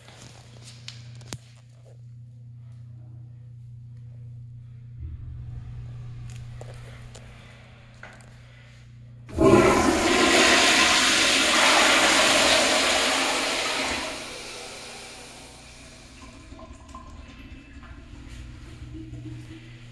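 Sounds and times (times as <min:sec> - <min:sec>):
toilet flushing: 0:09.3 - 0:19.9.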